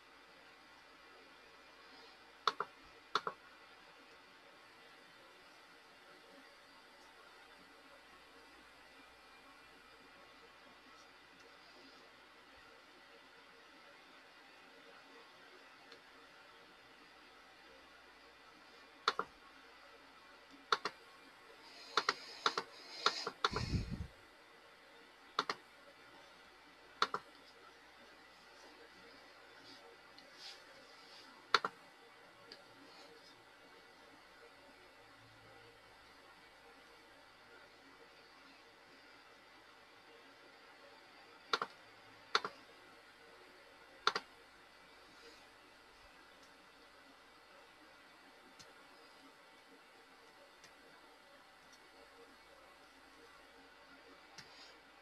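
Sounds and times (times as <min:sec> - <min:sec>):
computer clicks: 0:02.4 - 0:03.4, 0:19.0 - 0:19.3, 0:20.6 - 0:21.0, 0:21.9 - 0:23.8, 0:25.4 - 0:25.6, 0:27.0 - 0:27.4, 0:31.5 - 0:31.8, 0:41.5 - 0:42.6, 0:44.0 - 0:44.3.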